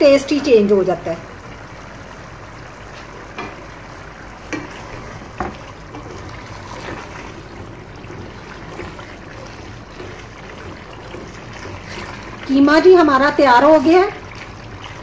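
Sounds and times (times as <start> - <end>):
gravy bubbling in pot: 0.0 - 15.0
wooden spoon stirring mince: 4.4 - 15.0.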